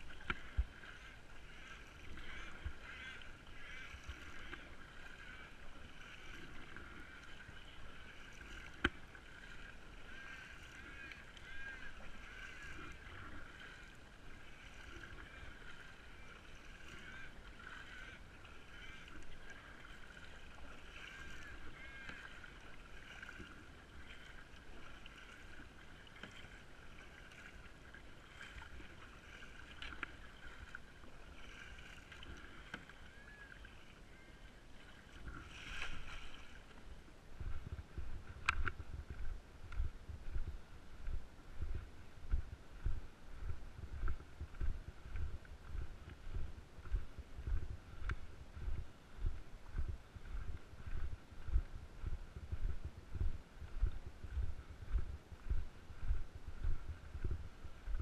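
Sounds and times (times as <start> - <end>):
paddle strokes in water: 0.0 - 58.0
water moving along hull: 0.0 - 58.0
birds chirping: 10.0 - 13.2, 15.0 - 22.7, 32.6 - 34.6.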